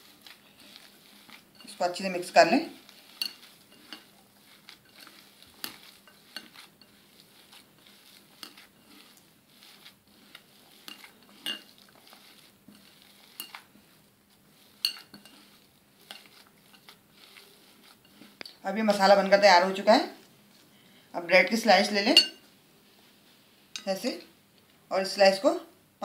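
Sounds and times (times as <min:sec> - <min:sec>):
hands squishing potato filling: 0:00.0 - 0:19.8
knocks and clinks against glass bowl: 0:10.9 - 0:11.7.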